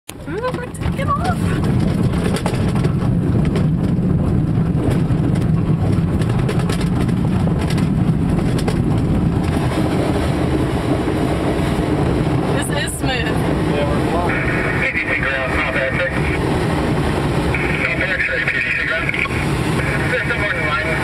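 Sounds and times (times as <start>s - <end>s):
airframe and canopy rattling: 0.1s - 12.6s
glider low rumble: 0.1s - 21.0s.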